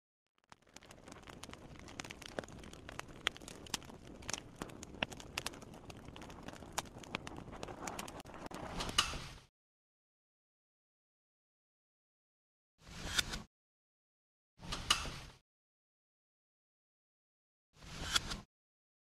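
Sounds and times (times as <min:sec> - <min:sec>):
crackling clicks and pops: 0:00.3 - 0:09.4.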